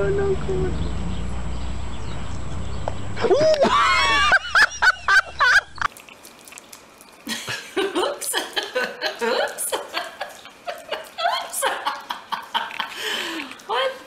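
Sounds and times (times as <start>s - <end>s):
soft voices: 9.2s - 14.0s.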